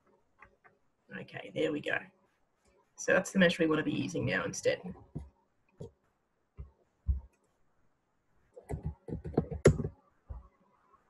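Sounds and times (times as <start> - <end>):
keyboard taps: 8.6 - 10.4.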